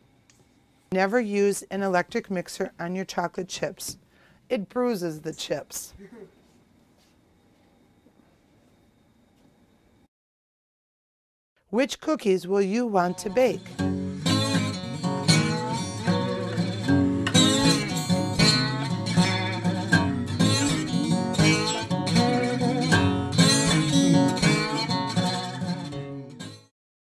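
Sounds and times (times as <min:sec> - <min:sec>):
plucked acoustic guitar music: 0:12.9 - 0:26.7.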